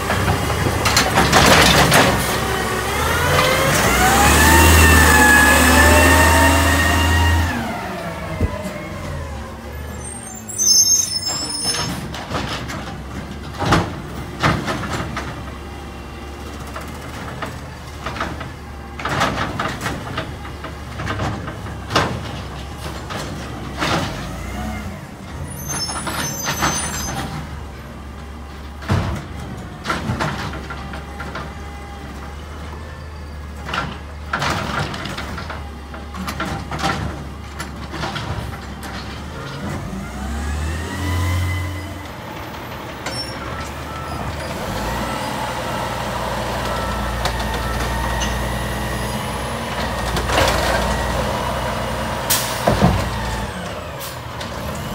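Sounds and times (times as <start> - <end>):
diesel engine rumbling: 0.0 - 54.9
truck knocks: 11.7 - 15.6, 49.8 - 54.9.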